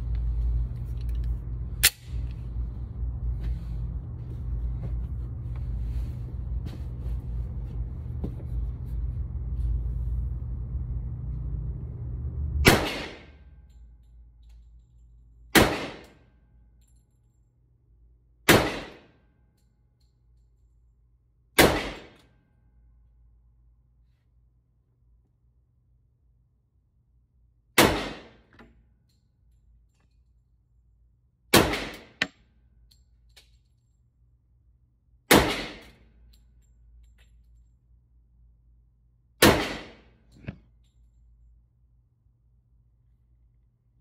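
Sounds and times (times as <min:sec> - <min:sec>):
steady low rumble: 0:00.0 - 0:44.0
pistol shots with echo: 0:12.7 - 0:13.2, 0:15.6 - 0:16.1, 0:18.5 - 0:19.1, 0:27.8 - 0:28.4, 0:35.3 - 0:35.9, 0:39.4 - 0:40.1.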